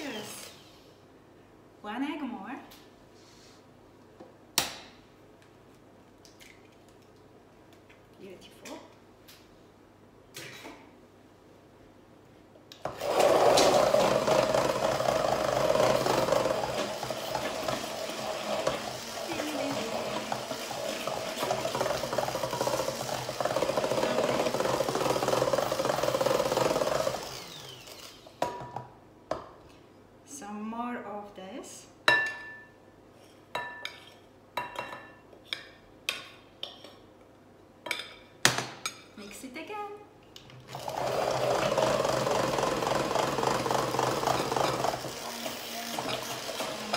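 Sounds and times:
stick blender motor running: 0:12.8 - 0:28.4, 0:40.7 - 0:46.9.

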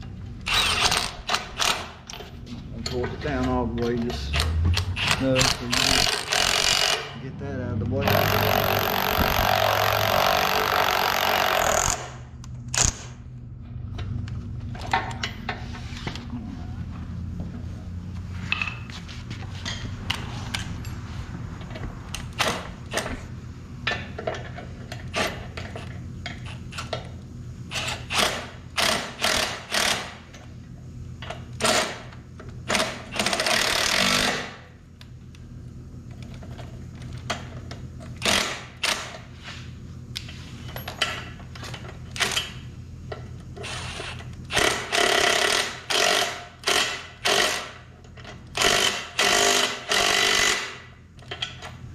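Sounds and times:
steady low hum: 0:00.0 - 0:51.9
impact wrench hammering bolts: 0:02.9 - 0:07.2, 0:08.0 - 0:12.2, 0:27.7 - 0:30.2, 0:38.2 - 0:39.2, 0:44.5 - 0:51.6.

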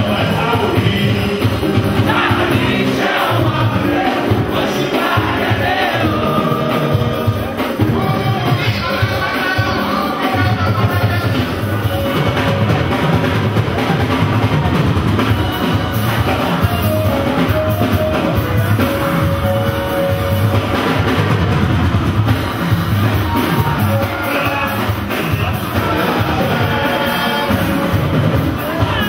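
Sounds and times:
voices singing: 0:00.0 - 0:13.9, 0:22.4 - 0:29.0
drum kit beat: 0:00.0 - 0:29.0.

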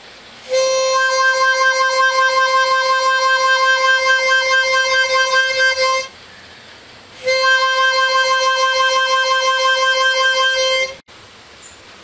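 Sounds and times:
harmonica note with tremolo: 0:00.4 - 0:06.2, 0:07.2 - 0:11.0.

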